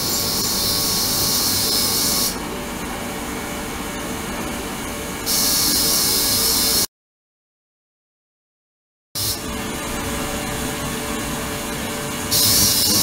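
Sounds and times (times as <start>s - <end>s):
ultrasonic cleaner hiss: 0.0s - 2.4s, 5.3s - 6.9s, 12.2s - 13.0s.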